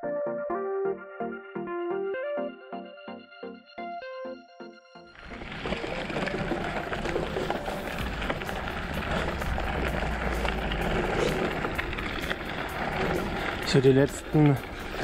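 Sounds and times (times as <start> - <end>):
bike tyres crunching on gravel: 5.2 - 15.0
low rumble: 7.9 - 14.9.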